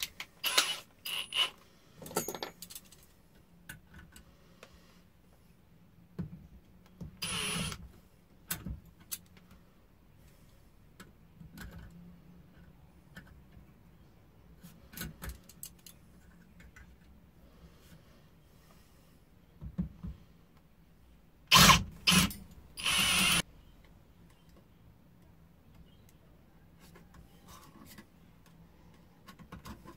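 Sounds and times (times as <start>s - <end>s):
metal tools clicking and clinking: 2.0s - 3.1s.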